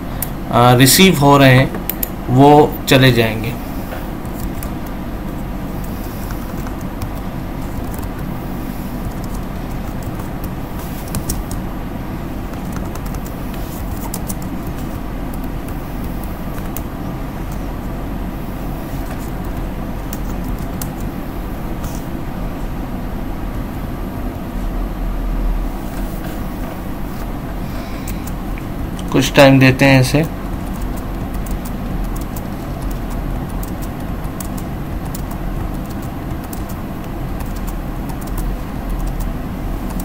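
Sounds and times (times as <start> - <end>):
low background rumble: 0.0 - 40.0
keyboard typing clicks: 6.2 - 8.3, 9.0 - 11.6, 12.5 - 16.9, 30.4 - 39.3.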